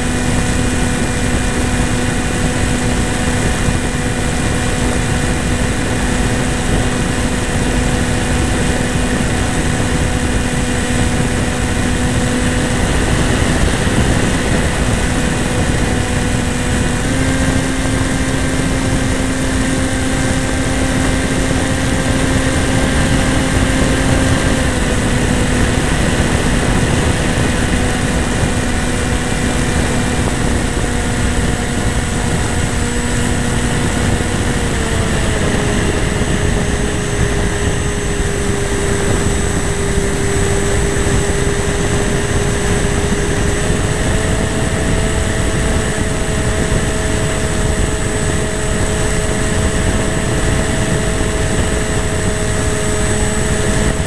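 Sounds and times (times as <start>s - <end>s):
model airplane motor whining: 0.0s - 54.0s
wind rush: 0.0s - 54.0s.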